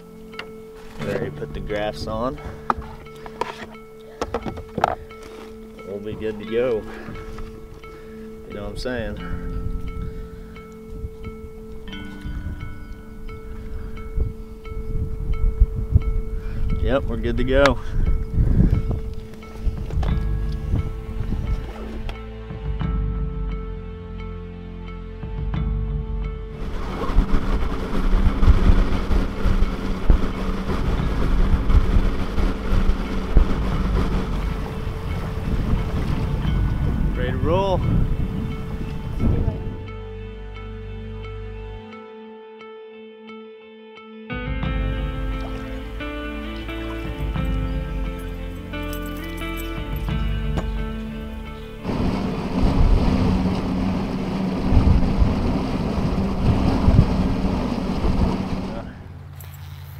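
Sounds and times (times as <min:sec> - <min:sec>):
wind buffeting microphone: 0:00.0 - 0:23.2, 0:26.5 - 0:40.2, 0:44.6 - 0:59.2
low thumps: 0:09.1 - 0:23.8, 0:25.2 - 0:40.1, 0:44.5 - 0:59.2
hull slamming into waves: 0:26.6 - 0:38.2, 0:51.8 - 0:59.0
outboard motor running: 0:26.6 - 0:39.8, 0:44.8 - 0:59.4.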